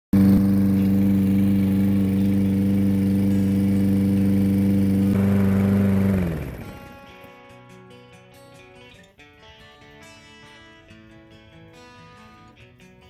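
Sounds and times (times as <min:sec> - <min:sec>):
lawn mower engine running: 0:00.1 - 0:07.1.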